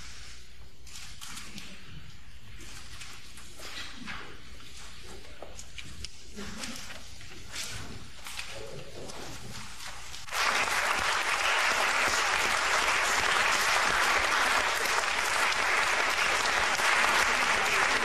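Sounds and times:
audience applauding: 10.3 - 18.0.

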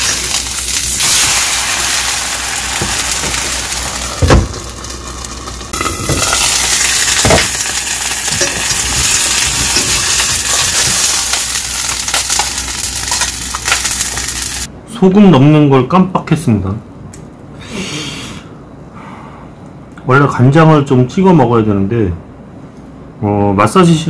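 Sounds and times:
pancake sizzling in hot oil: 0.0 - 14.7.

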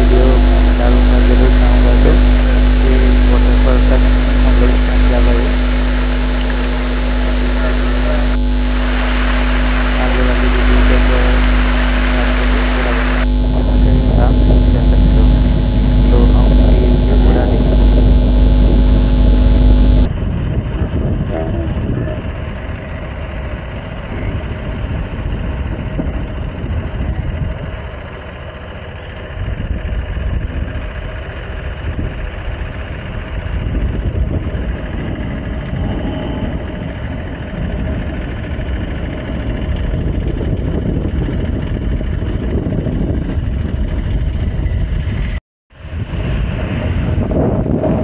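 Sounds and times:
road and wind noise: 20.1 - 48.0.

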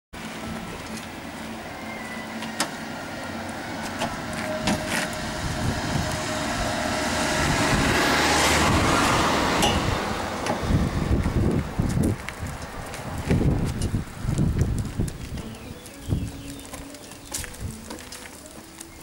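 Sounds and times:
rushing noise: 0.2 - 11.9
rake and wheelbarrow on pavement: 0.2 - 19.0.

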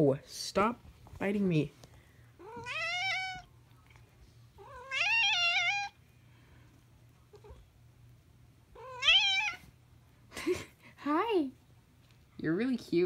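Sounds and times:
cat meowing: 2.4 - 3.5, 4.6 - 6.0, 8.8 - 9.7.

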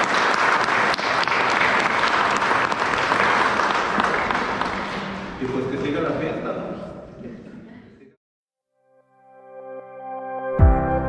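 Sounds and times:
congregation applauding: 0.0 - 5.9.

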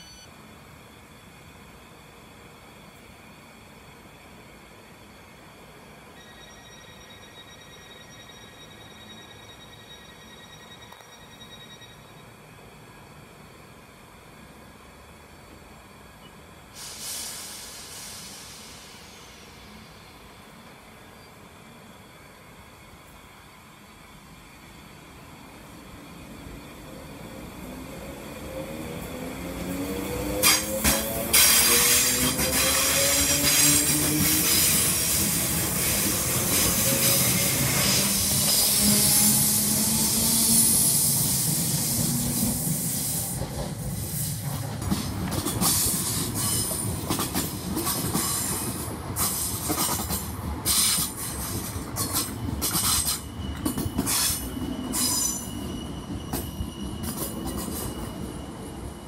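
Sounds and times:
train wheels clacking over rail joints: 30.4 - 37.4, 43.4 - 55.4
thin wheel squeal: 52.8 - 58.2.

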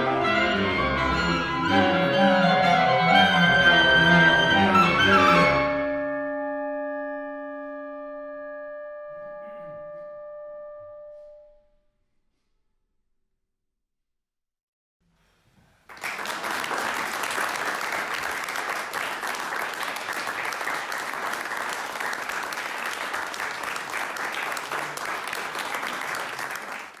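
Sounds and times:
audience applauding: 15.7 - 27.0.

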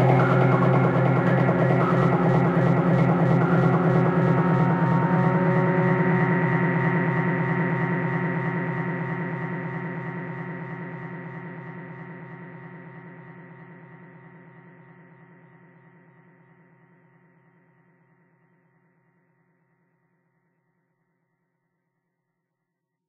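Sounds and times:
electronic synth and drum music: 0.0 - 5.8.

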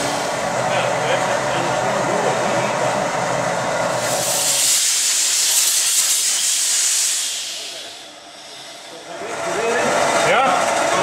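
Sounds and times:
steady machine noise: 0.0 - 11.0
compressed air hissing: 3.9 - 9.0.

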